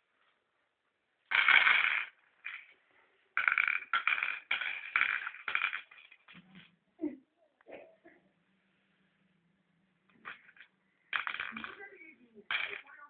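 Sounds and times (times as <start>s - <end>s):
glass stones clattering and clinking: 3.4s - 6.7s, 10.2s - 13.0s.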